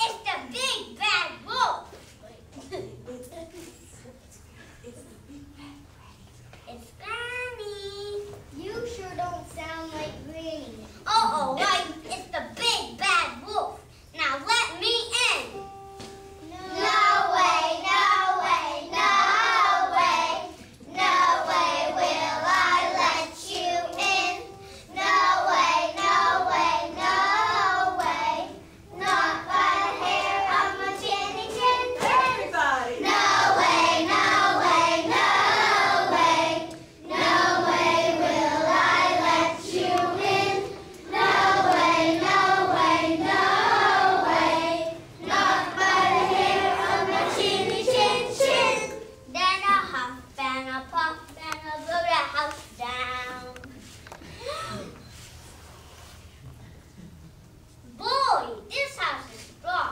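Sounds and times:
children singing together: 0:15.6 - 0:49.8.

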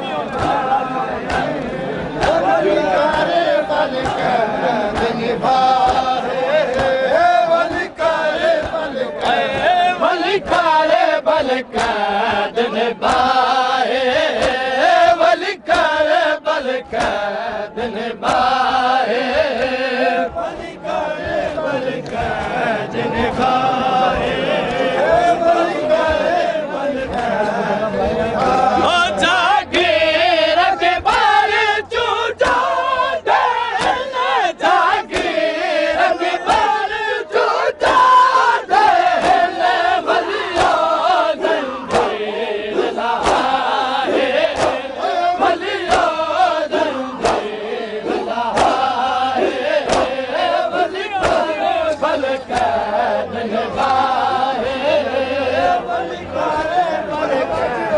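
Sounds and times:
men chanting a lament: 0:00.0 - 0:57.9
hands slapping bare chests: 0:00.3 - 0:16.2, 0:16.9 - 0:17.4, 0:18.2 - 0:18.7, 0:31.0 - 0:31.4, 0:32.4 - 0:36.8, 0:37.8 - 0:52.8.

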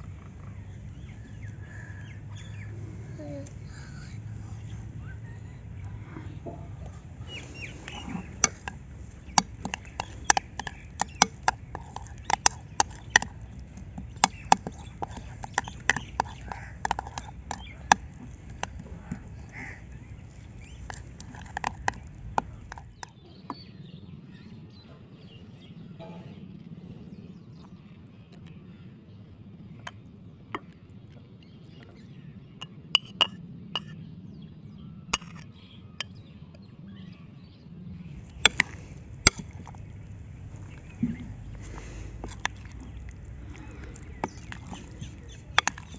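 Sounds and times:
metal spoon clinking on ceramic bowls: 0:07.4 - 0:19.2, 0:20.7 - 0:23.1, 0:33.0 - 0:34.0, 0:35.2 - 0:35.4, 0:41.8 - 0:45.9.

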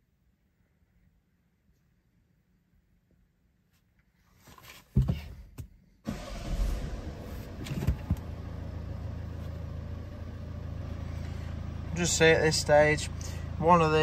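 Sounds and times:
diesel engine starting and idling: 0:06.0 - 0:14.0.

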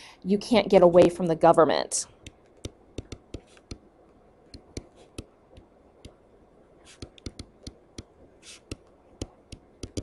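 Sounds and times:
stylus scratching on screen: 0:02.2 - 0:03.8, 0:04.6 - 0:05.3, 0:06.8 - 0:10.0
stylus tapping on tablet screen: 0:02.2 - 0:03.8, 0:04.5 - 0:06.2, 0:06.9 - 0:10.0.

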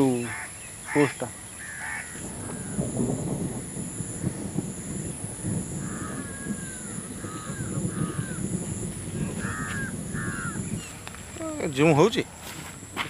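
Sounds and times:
crows cawing: 0:00.0 - 0:04.4, 0:05.7 - 0:11.2.

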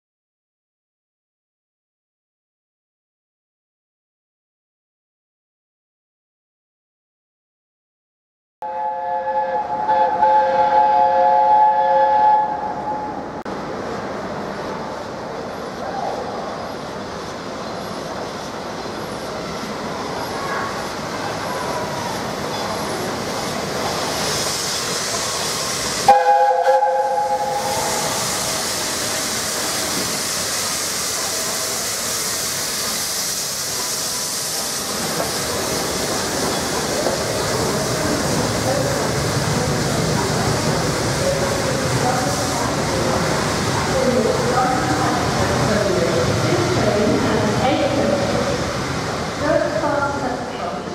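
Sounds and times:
steam locomotive chime whistle: 0:08.6 - 0:13.2, 0:26.0 - 0:28.7
train rumbling and hissing past: 0:08.6 - 0:50.9.

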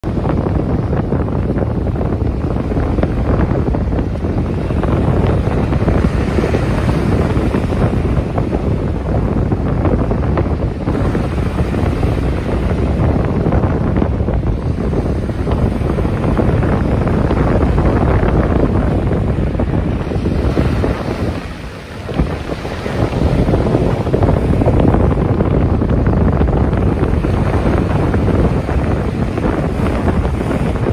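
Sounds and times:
sea waves breaking: 0:00.0 - 0:30.9
wind rumble on microphone: 0:00.0 - 0:30.9.

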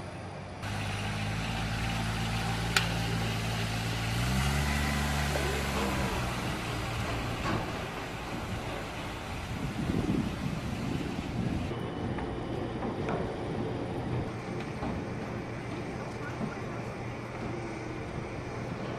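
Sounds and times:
off-road vehicle engine revving: 0:00.6 - 0:11.7
sharp metallic click: 0:02.7 - 0:03.0.

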